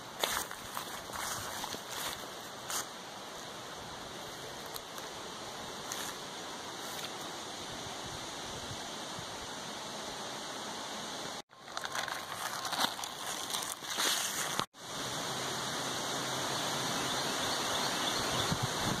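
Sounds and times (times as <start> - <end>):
steady hiss: 0.0 - 19.0
gusty wind rushing: 18.0 - 19.0.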